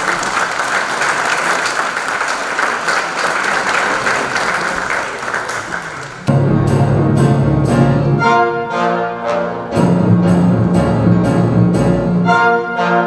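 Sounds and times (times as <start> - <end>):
audience applauding: 0.0 - 6.3
orchestra with brass playing: 6.2 - 13.0.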